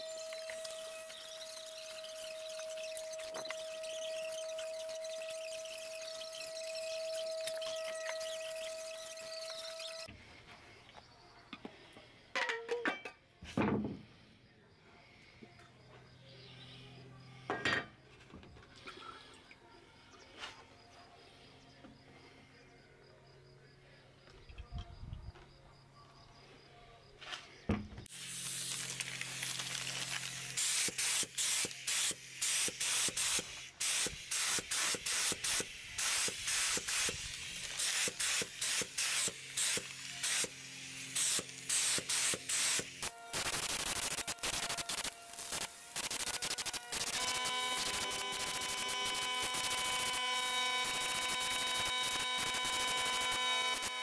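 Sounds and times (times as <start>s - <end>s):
spray gun air hiss: 28.1s - 29.5s, 30.4s - 47.2s.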